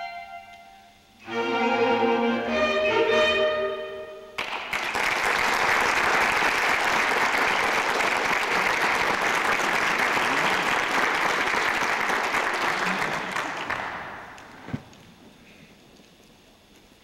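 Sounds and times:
clarinet ensemble chord: 0:00.0 - 0:04.4
audience applause: 0:04.4 - 0:14.6.

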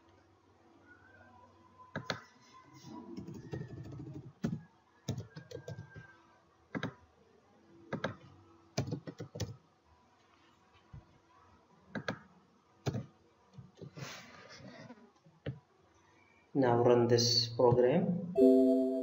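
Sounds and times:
computer keyboard typing: 0:03.2 - 0:06.0, 0:08.8 - 0:09.6.

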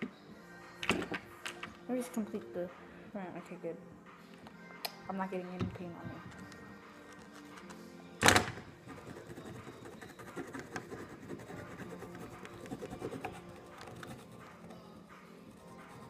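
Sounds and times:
scratchy rubbing of paint: 0:08.9 - 0:14.7.

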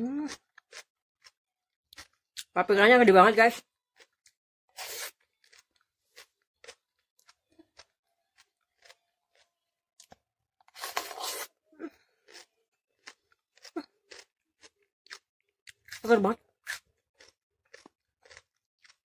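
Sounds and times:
crisp crunching of bell pepper: 0:04.8 - 0:11.5, 0:12.2 - 0:16.1, 0:16.7 - 0:19.0.

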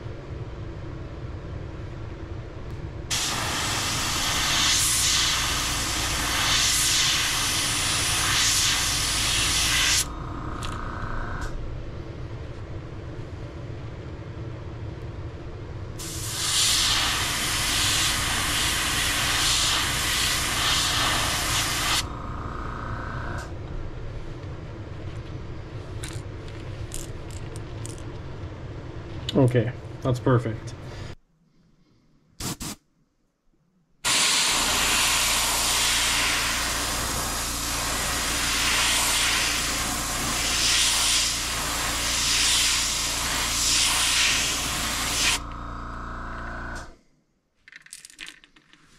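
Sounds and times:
steady low hum: 0:00.0 - 0:47.3
airbrush spraying hiss: 0:03.1 - 0:10.1, 0:16.0 - 0:22.0, 0:32.4 - 0:32.8, 0:34.1 - 0:45.4.

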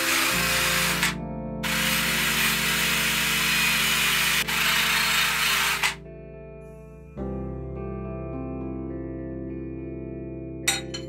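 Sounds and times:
wire brush drill scrubbing metal: 0:00.0 - 0:06.0
background music: 0:00.0 - 0:11.0.

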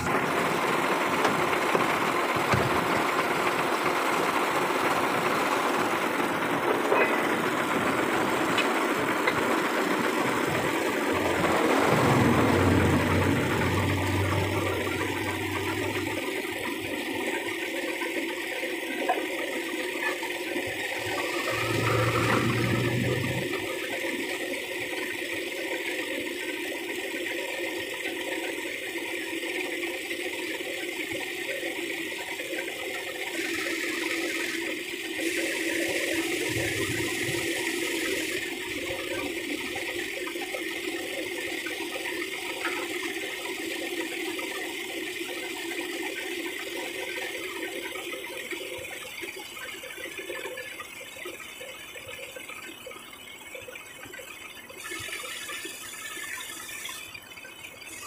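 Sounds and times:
diesel truck engine idling: 0:00.0 - 0:16.8.

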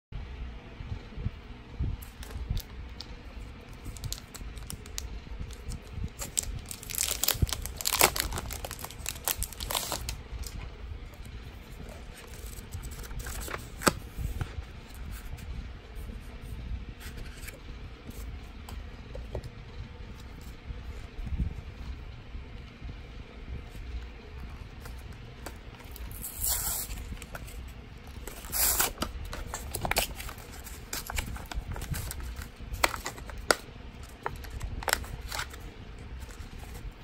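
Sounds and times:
plastic packaging crinkling: 0:03.7 - 0:10.6, 0:25.8 - 0:35.6.

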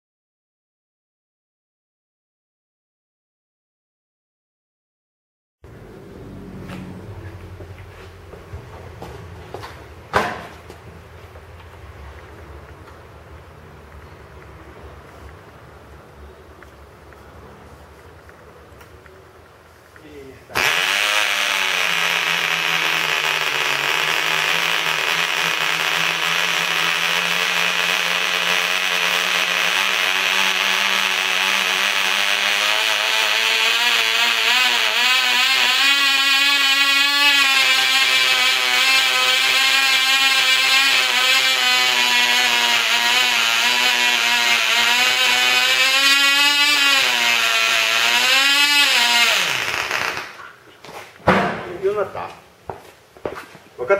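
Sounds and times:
model engine buzzing whine: 0:20.6 - 0:50.4.

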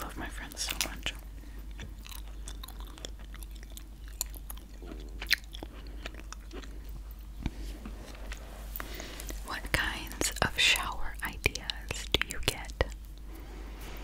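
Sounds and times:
wet mouth clicks chewing gum: 0:00.6 - 0:07.5, 0:10.2 - 0:13.3.

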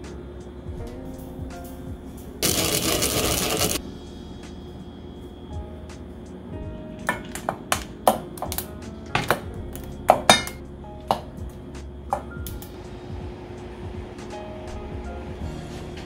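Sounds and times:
ice cubes clinking on metal bowls: 0:02.4 - 0:03.8.

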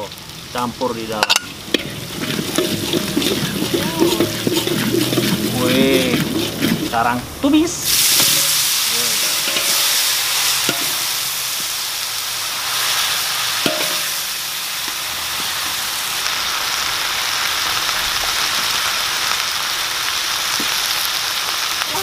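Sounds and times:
greens sizzling in a wok: 0:00.0 - 0:22.0
metal spatula knocking wok: 0:01.2 - 0:07.0, 0:08.1 - 0:10.0, 0:10.6 - 0:11.1, 0:13.6 - 0:14.2.

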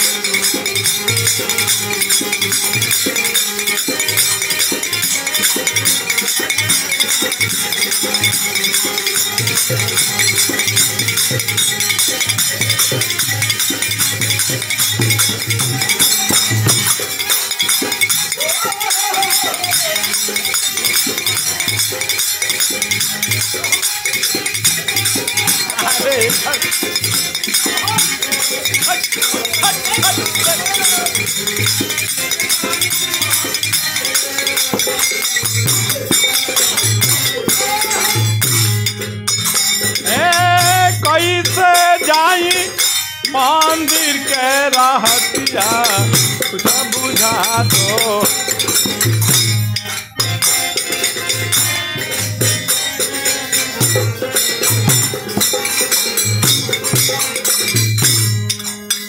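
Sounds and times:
dholak drum strokes: 0:00.0 - 0:59.0
hand cymbals jangling: 0:00.0 - 0:59.0
person singing: 0:40.0 - 0:49.0.

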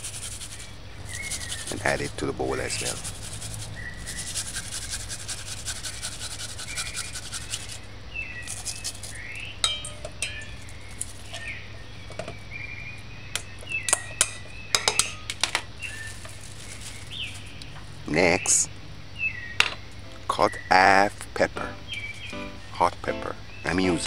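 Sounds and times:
grater clinking against metal bowl: 0:00.0 - 0:07.7
onion rasping on grater: 0:00.0 - 0:07.8, 0:08.4 - 0:09.2.

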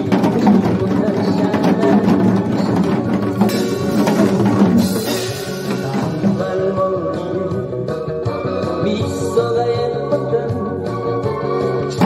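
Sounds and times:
hourglass drums struck with sticks: 0:00.0 - 0:06.6
recorded pop song with a beat: 0:00.0 - 0:12.0.

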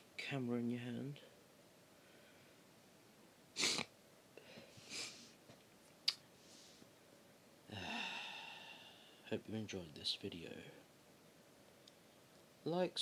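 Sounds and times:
breaths near microphone: 0:01.9 - 0:02.6, 0:04.4 - 0:05.4, 0:06.4 - 0:07.0, 0:07.7 - 0:09.3
person speaking: 0:12.6 - 0:13.0.

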